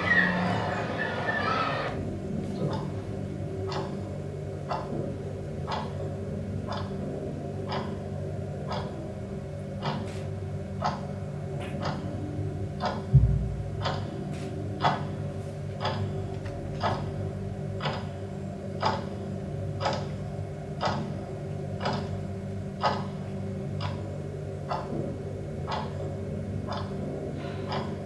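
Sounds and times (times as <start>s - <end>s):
low steady hum: 0.0s - 28.0s
clock-like ticking: 2.6s - 3.0s, 3.6s - 6.0s, 6.6s - 9.1s, 9.8s - 10.1s, 10.8s - 12.2s, 12.8s - 14.2s, 14.8s - 20.2s, 20.8s - 22.2s, 22.8s - 26.0s, 26.6s - 28.0s
dull thump: 13.1s - 13.5s.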